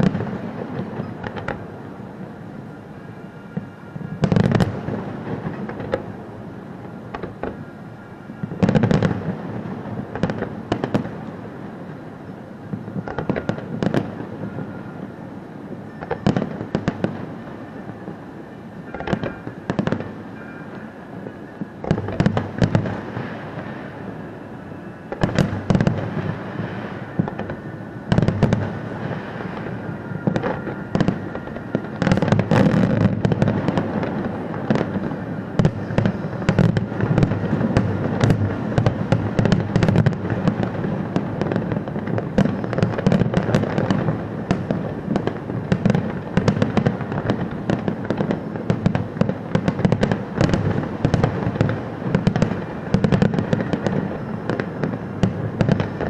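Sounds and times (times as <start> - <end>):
firework crackling: 0.0 - 56.0.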